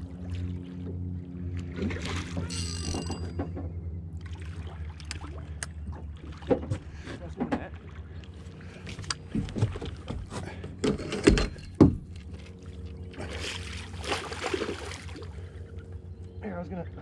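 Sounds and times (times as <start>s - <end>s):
steady low hum: 0.0s - 17.0s
fishing gear knocking in boat: 2.4s - 3.8s, 8.9s - 12.2s
fish splashing at surface: 13.2s - 15.4s
landing net entering water: 13.2s - 15.4s.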